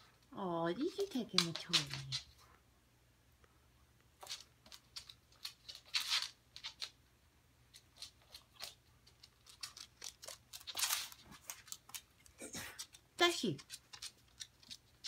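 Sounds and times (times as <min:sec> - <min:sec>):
dog claws clicking on hardwood floor: 0:00.8 - 0:02.4, 0:04.2 - 0:07.0, 0:07.7 - 0:15.0.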